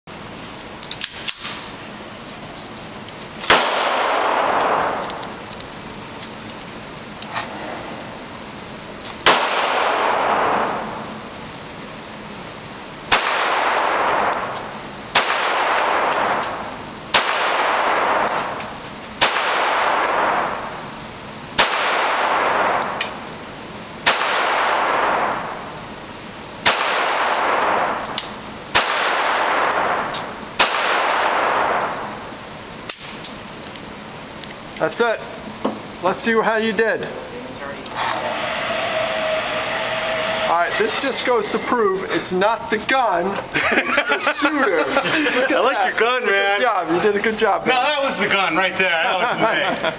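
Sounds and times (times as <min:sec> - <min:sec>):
pistol shots ringing indoors: 0:03.4 - 0:05.1, 0:09.2 - 0:11.0, 0:13.1 - 0:14.5, 0:15.1 - 0:18.5, 0:19.2 - 0:20.6, 0:21.6 - 0:23.0, 0:24.0 - 0:25.6, 0:26.6 - 0:28.0, 0:28.7 - 0:32.1.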